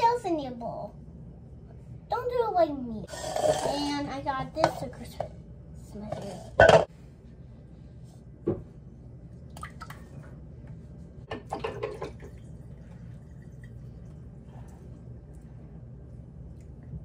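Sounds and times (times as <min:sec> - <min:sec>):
liquid pouring into bowl: 0:11.4 - 0:15.1.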